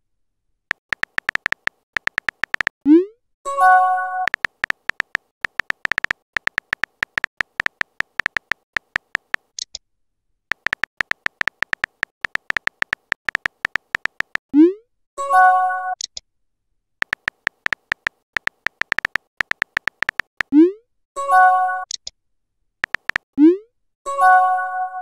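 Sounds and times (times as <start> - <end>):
keyboard typing clicks: 0.7 - 2.8, 4.3 - 9.6, 10.5 - 14.5, 17.0 - 20.6, 22.8 - 23.3.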